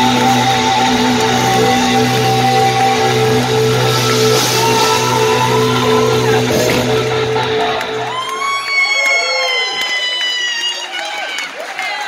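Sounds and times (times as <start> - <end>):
live rock band playing: 0.0 - 8.8
audience whooping and cheering: 0.0 - 12.0.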